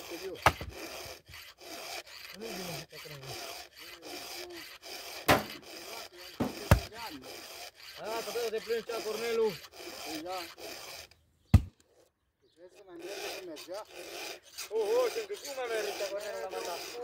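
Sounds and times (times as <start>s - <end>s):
file rasping on saw chain: 0.0s - 11.2s, 12.6s - 17.0s
sharp knocks: 5.3s - 5.6s, 6.4s - 6.9s, 11.5s - 11.7s.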